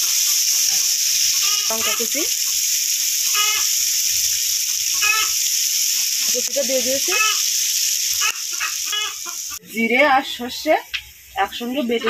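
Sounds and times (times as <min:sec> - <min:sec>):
onions sizzling in oil: 0:00.0 - 0:12.0
animal calls: 0:03.2 - 0:03.9, 0:04.9 - 0:05.4, 0:07.0 - 0:07.5, 0:08.1 - 0:09.6.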